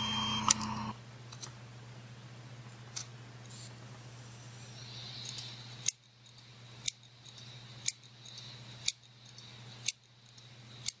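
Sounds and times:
hard drive platter hum: 0.0 - 1.0.

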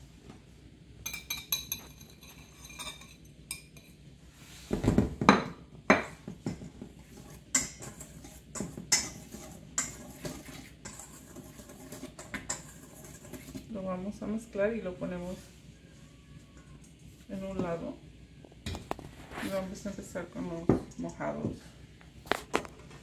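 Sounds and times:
whisk scraping metal bowl: 6.6 - 14.2.

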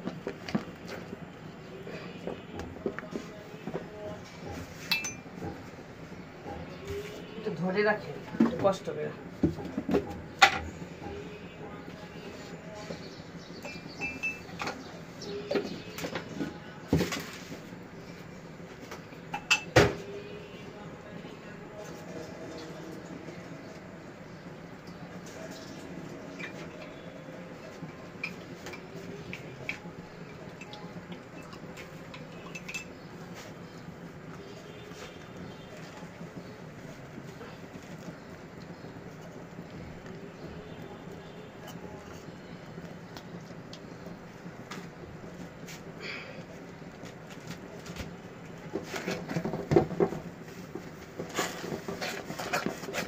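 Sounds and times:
caramel bubbling: 0.0 - 53.0
spatula stirring caramel: 23.2 - 47.1.

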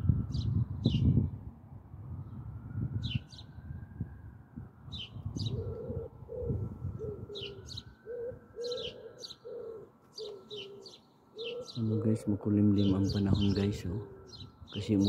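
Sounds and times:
pigeons cooing: 5.4 - 15.0
small birds chirping: 7.0 - 15.0.

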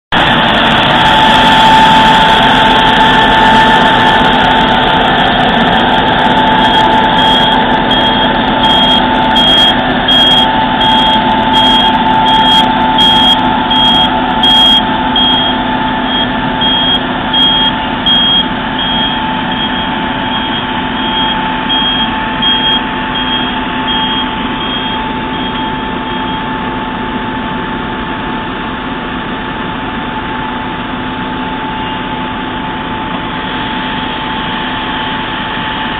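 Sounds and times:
sweeper truck suction fan roar: 0.1 - 35.9
warning beeper short high beeps: 5.7 - 26.5.

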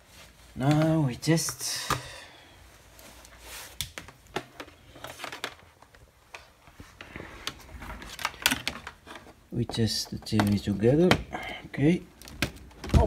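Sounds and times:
clicks of handling tv parts: 7.4 - 9.4.

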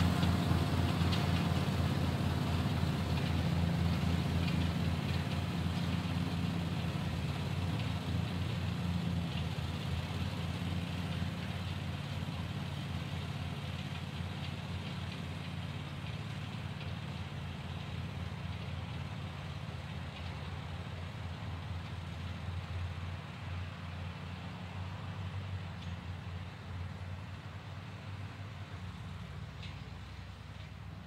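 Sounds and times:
engine humming: 0.0 - 31.0.

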